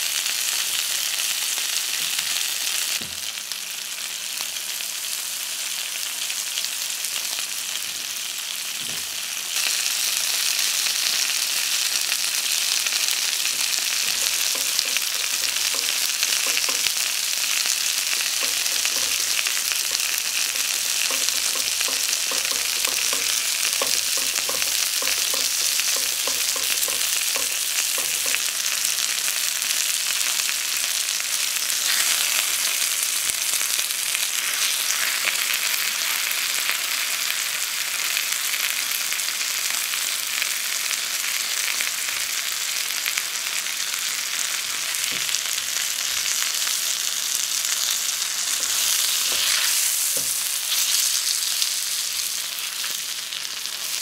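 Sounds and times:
food sizzling in a pan: 0.0 - 54.0.

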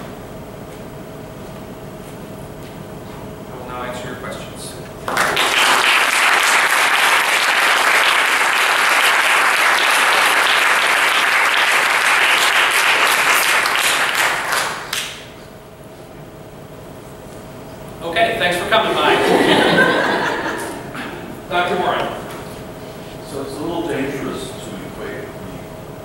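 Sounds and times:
audience applauding: 5.0 - 15.3.

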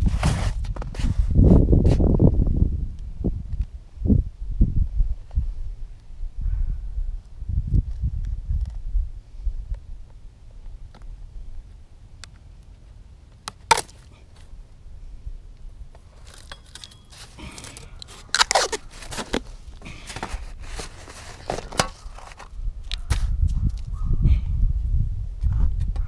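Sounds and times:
snow crunching and scraping: 0.0 - 2.0, 16.1 - 22.5.

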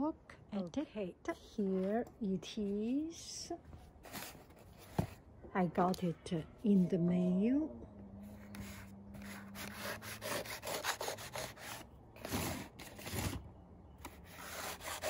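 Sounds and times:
knife slicing tape and cardboard: 8.5 - 13.4.

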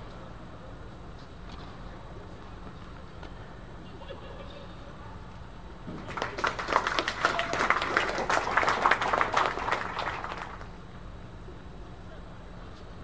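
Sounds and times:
voices: 0.1 - 13.0
spectators clapping: 6.0 - 10.8.

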